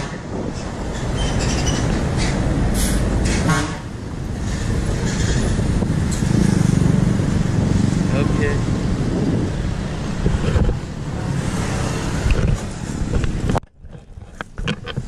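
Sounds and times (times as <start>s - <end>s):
vehicles passing: 0.0s - 15.0s
horn honk: 3.3s - 3.9s.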